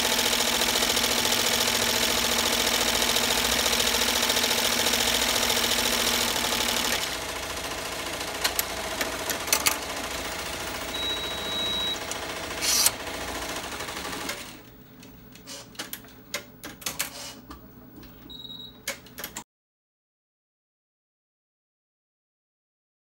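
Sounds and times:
embroidery machine stitching: 0.0 - 14.7
short high beep: 11.0 - 12.0.

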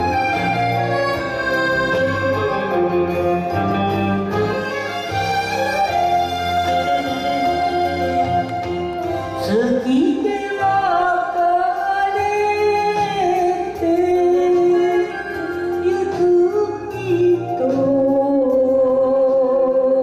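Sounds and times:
instrumental backing music: 0.0 - 20.0
woman singing into a microphone: 9.4 - 20.0.

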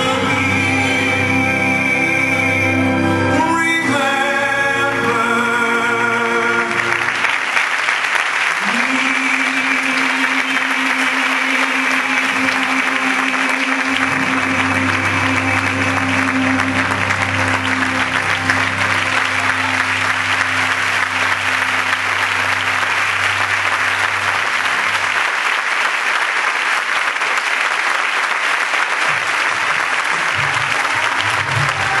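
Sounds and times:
background music: 0.0 - 7.5, 8.6 - 25.2
audience applauding: 6.2 - 32.0.

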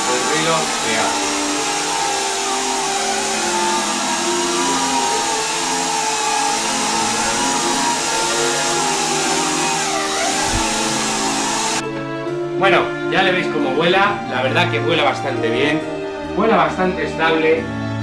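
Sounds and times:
quadcopter propellers whining: 0.0 - 11.9.

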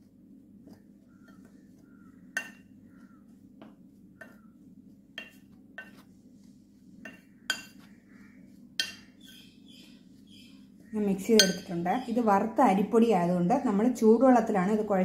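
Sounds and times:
steady low hum: 0.0 - 15.0
spoon scraping dry mixture: 0.5 - 12.3
spoon clinking on glass bowl: 8.8 - 9.1, 11.3 - 11.8.

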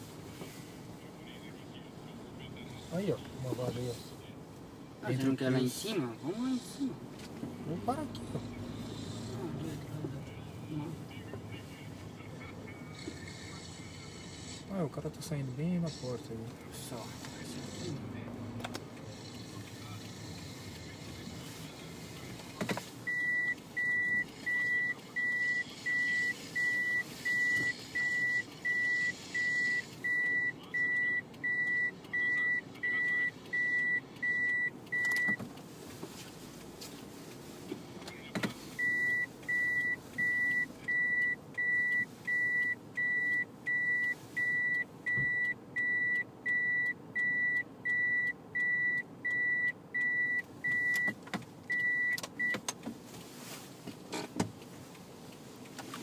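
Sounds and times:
high-pitched car warning beeps: 7.7 - 36.5, 38.0 - 52.8.

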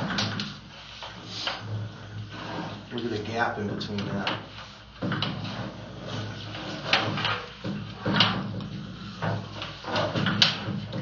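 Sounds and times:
cable scraping through pipe: 0.0 - 3.7.

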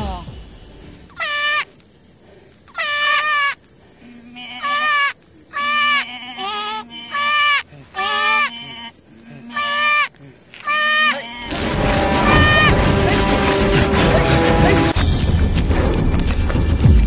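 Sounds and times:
lamb bleating: 4.4 - 8.9
lower bleat: 5.6 - 10.0.

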